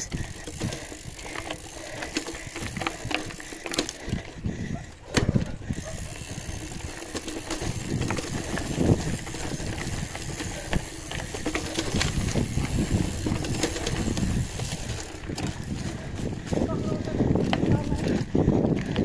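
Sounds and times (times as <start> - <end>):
road noise: 0.0 - 18.6
wind rumbling over microphone: 4.0 - 19.0.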